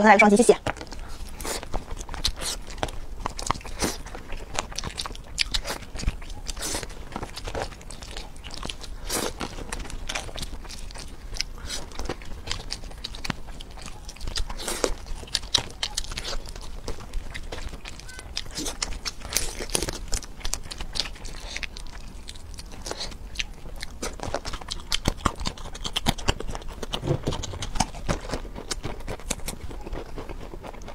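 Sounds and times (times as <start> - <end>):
person chewing shrimp: 0.7 - 30.9
shrimp shells cracking: 12.0 - 30.1.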